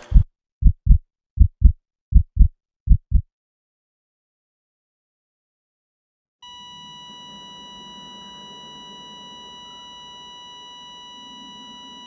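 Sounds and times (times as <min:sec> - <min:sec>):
steady electronic beep tone: 0:06.4 - 0:12.0.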